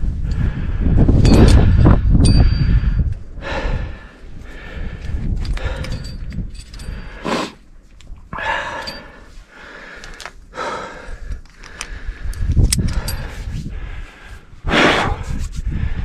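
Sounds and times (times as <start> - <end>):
person breathing hard: 0.1 - 7.7, 8.3 - 16.0
metal climbing gear clinking: 1.2 - 3.2, 4.9 - 10.5, 11.3 - 13.6.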